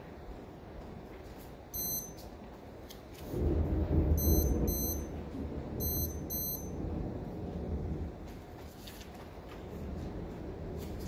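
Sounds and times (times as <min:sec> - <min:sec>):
short high electronic beeps: 0:01.8 - 0:02.2, 0:04.2 - 0:05.1, 0:05.8 - 0:06.7
heavy rain hiss: 0:03.2 - 0:08.6
loud low thunder rumble: 0:03.3 - 0:08.3, 0:09.8 - 0:11.0.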